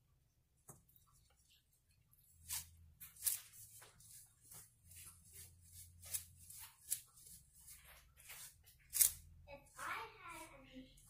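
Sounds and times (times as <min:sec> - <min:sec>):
flour rubbed through mesh sieve: 0:02.3 - 0:11.0.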